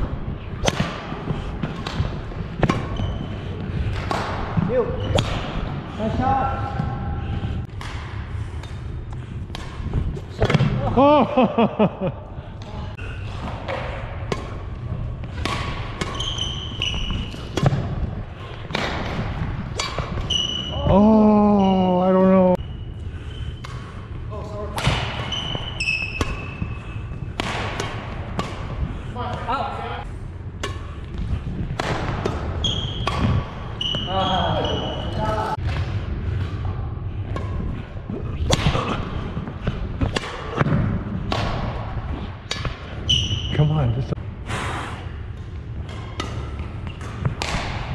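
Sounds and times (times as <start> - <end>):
rackets striking shuttlecock: 0.6 - 3.0, 45.8 - 47.9
racket hitting shuttlecock: 0.6 - 3.2, 13.4 - 14.7, 15.3 - 20.6, 24.8 - 26.7, 27.3 - 28.8, 30.6 - 34.0, 38.5 - 39.1, 39.7 - 43.0, 45.8 - 47.9
shoes squeaking on wooden floor: 16.2 - 17.5.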